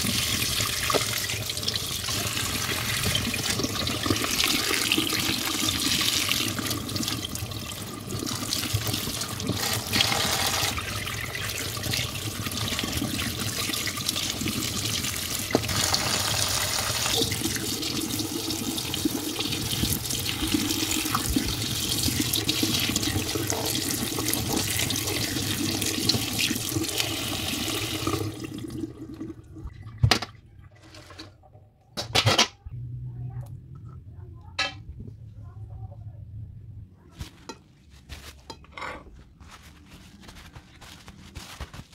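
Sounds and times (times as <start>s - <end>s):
tap water running: 0.0s - 31.5s.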